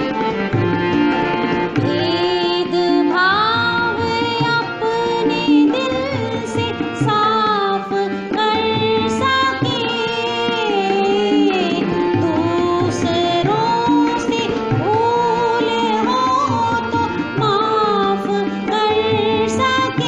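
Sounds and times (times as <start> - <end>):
tabla drum beat: 0.0 - 20.0.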